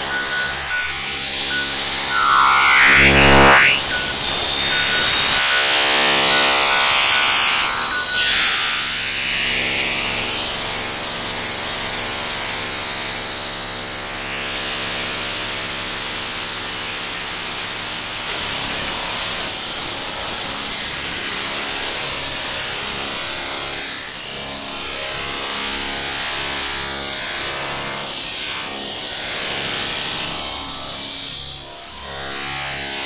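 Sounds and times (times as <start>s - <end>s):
rising sweep: 0.0s - 9.6s.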